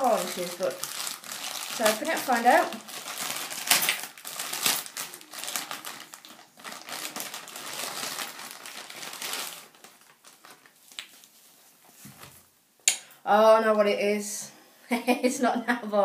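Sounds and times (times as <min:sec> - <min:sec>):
plastic mailing bag crinkling: 0:00.0 - 0:11.5.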